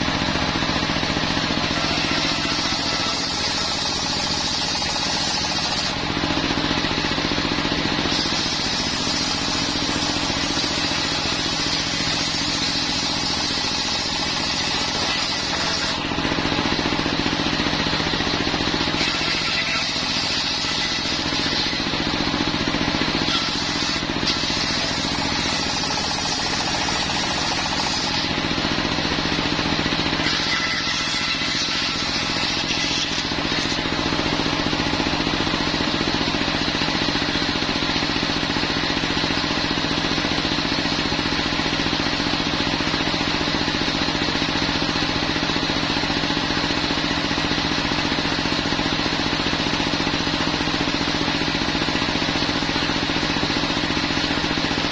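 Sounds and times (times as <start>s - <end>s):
circular saw blade cutting wood: 0.0s - 38.1s
diesel engine running: 0.0s - 54.9s.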